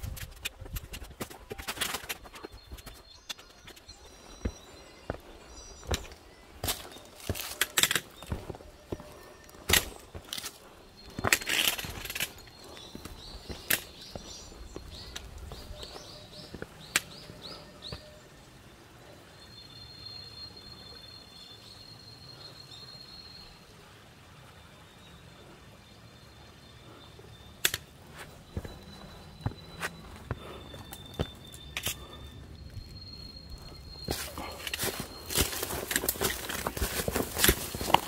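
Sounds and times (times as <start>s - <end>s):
bird chirping: 0.0s - 23.6s, 25.0s - 38.0s
boots knocking on rock: 5.8s - 7.6s, 34.1s - 38.0s.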